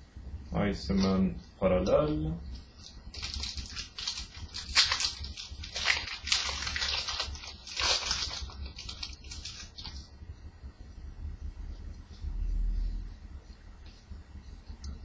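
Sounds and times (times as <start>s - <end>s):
cards and wrappers rustling: 1.8s - 10.1s.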